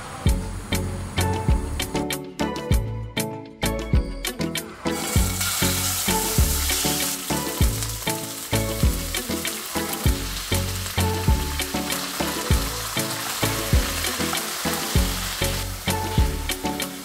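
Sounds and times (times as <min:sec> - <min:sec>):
background music with steady beat: 0:00.0 - 0:17.0
chicken sizzling in frying pan: 0:04.9 - 0:17.0.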